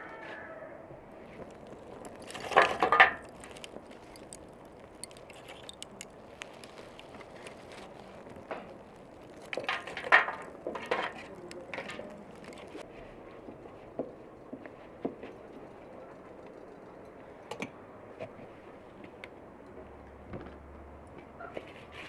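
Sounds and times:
charcoal crackling and popping: 1.1s - 12.9s
hard clinking and clattering: 1.8s - 7.4s, 8.2s - 12.8s.

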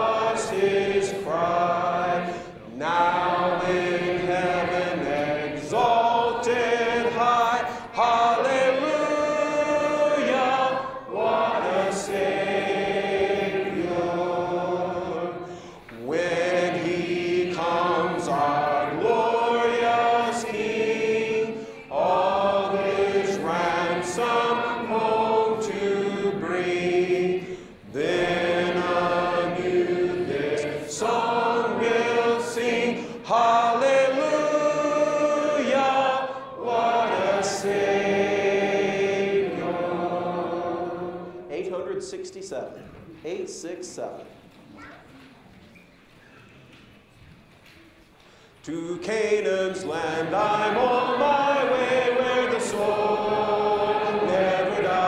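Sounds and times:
congregation singing a hymn: 0.0s - 44.0s, 48.2s - 55.0s.

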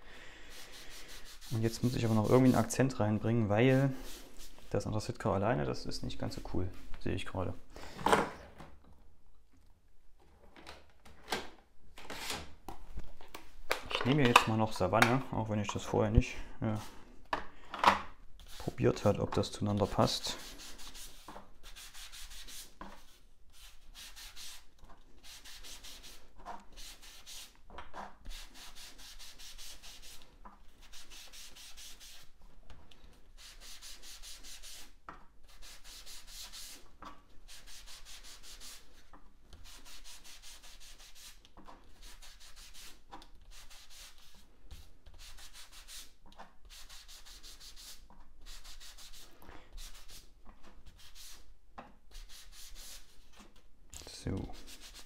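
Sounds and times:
sponge scrubbing on cardstock: 0.5s - 2.8s, 3.8s - 4.7s, 19.8s - 27.5s, 28.2s - 30.2s, 30.8s - 32.4s, 33.4s - 36.8s, 37.4s - 39.0s, 39.6s - 51.4s, 52.2s - 53.2s, 54.5s - 55.0s.

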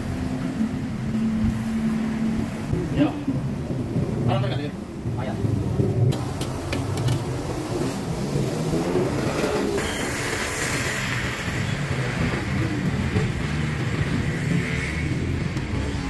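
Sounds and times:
steady low rumble: 0.0s - 16.0s.

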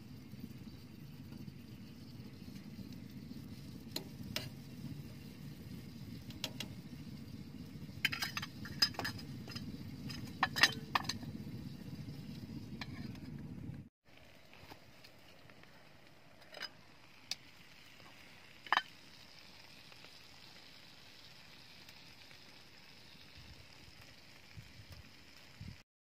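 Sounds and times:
steady low rumble: 0.0s - 13.9s
metal cookware clinking: 8.0s - 11.4s, 18.7s - 18.9s.

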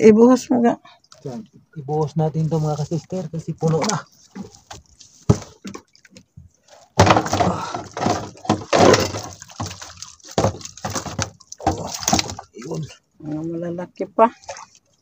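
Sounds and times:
squid and water splashing into box: 6.9s - 12.8s.

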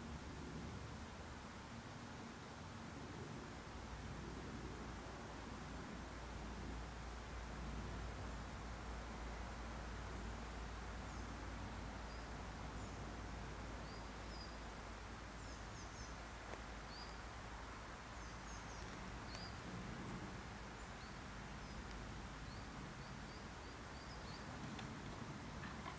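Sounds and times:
low steady rumble: 0.0s - 25.9s
small birds chirping: 10.2s - 25.9s.

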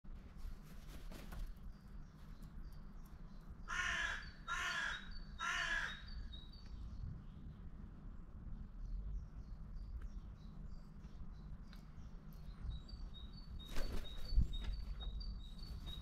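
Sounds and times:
crow cawing: 3.7s - 6.2s.

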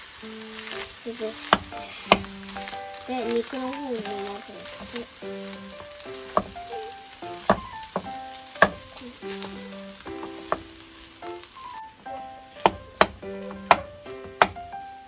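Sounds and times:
food sizzling in a frying pan: 0.0s - 15.0s
wooden spatula scraping a pan: 0.5s - 11.8s, 12.6s - 14.7s
spatula knocking against pan: 1.5s - 2.4s, 4.7s - 5.0s, 5.8s - 6.8s, 7.4s - 9.4s, 10.2s - 10.8s, 12.6s - 14.7s.

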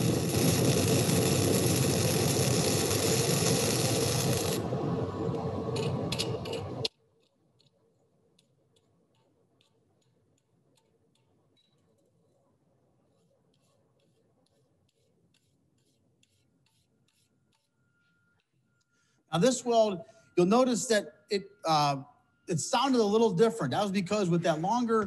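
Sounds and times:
welding arc crackle: 0.0s - 7.0s.

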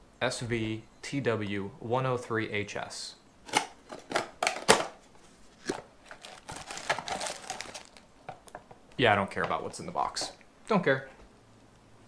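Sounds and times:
plastic crinkling: 5.3s - 8.6s.

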